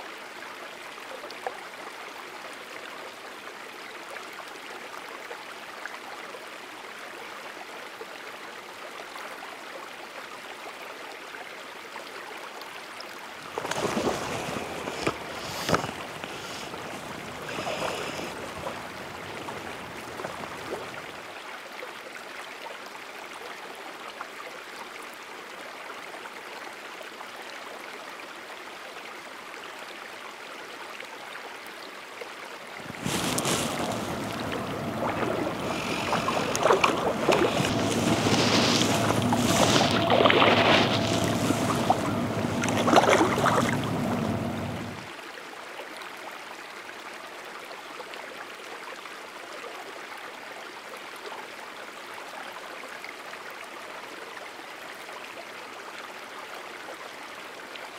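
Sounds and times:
creek water rushing: 13.2s - 21.4s, 32.8s - 45.2s
knocks and splashes: 13.4s - 21.1s, 32.8s - 45.0s.

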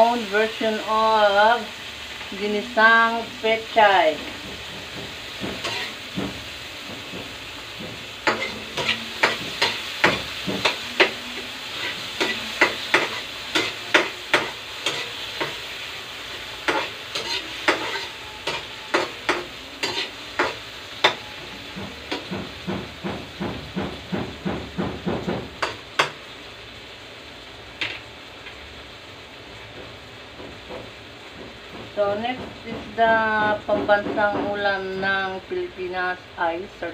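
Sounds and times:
sizzling oil: 0.0s - 36.9s
metal spatula scraping a wok: 3.6s - 6.2s, 8.1s - 22.6s.

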